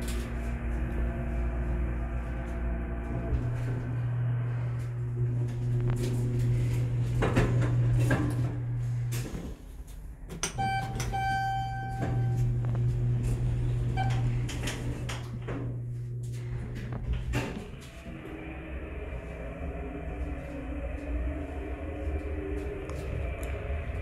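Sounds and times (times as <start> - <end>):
elevator low hum: 0.0 - 24.0
electronic chime: 10.6 - 12.4
short beep: 10.6 - 12.4.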